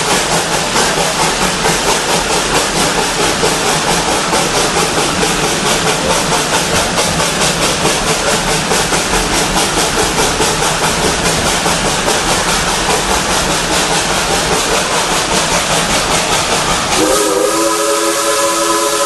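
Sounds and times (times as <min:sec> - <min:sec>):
loud steam hiss: 0:00.0 - 0:19.0
steam locomotive chuffing: 0:00.0 - 0:19.0
steam whistle chord: 0:17.0 - 0:19.0.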